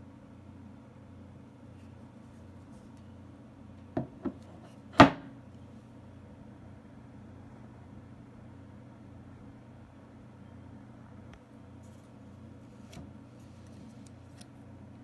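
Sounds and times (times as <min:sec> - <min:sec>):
faint steady hum: 0:00.0 - 0:15.0
metal box knocking on wooden desk: 0:04.0 - 0:04.4.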